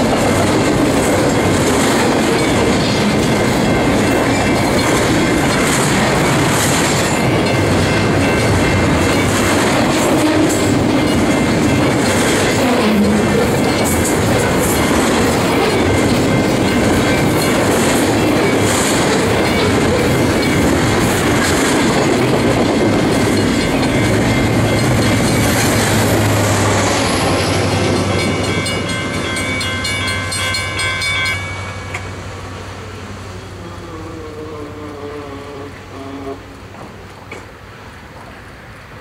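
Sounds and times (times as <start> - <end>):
train wheels clattering on rails: 0.0 - 32.3, 36.5 - 39.0
diesel locomotive engine hum: 0.0 - 39.0.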